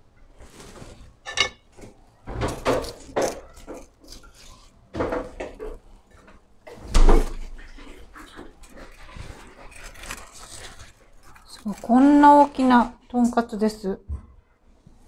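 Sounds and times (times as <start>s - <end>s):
dishes knocking and scraping: 1.2s - 4.2s, 4.9s - 6.4s.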